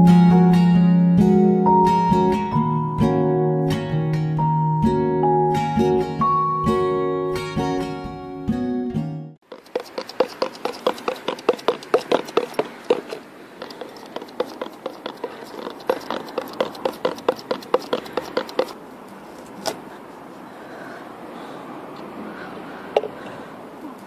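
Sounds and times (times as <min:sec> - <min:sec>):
plastic cup knocking on asphalt: 0:09.5 - 0:18.7.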